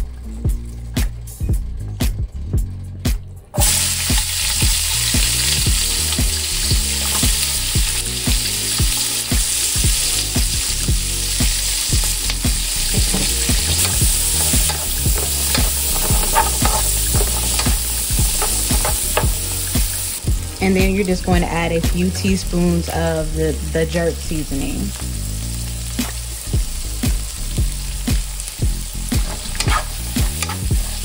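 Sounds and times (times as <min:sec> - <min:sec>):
onions and peppers sizzling: 0:03.6 - 0:31.0
stirring clicks and taps in pan: 0:12.0 - 0:20.0.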